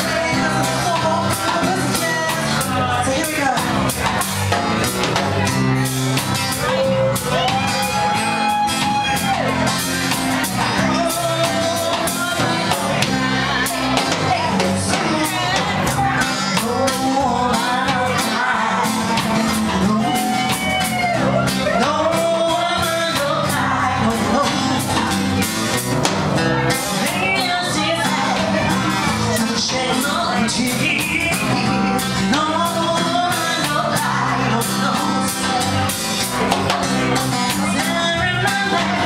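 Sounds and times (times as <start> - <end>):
woman singing: 0.0 - 3.7, 10.5 - 25.4, 26.6 - 36.0, 37.2 - 39.0
acoustic guitar: 0.0 - 39.0
drum kit beat: 0.0 - 39.0
electric guitar: 0.0 - 39.0.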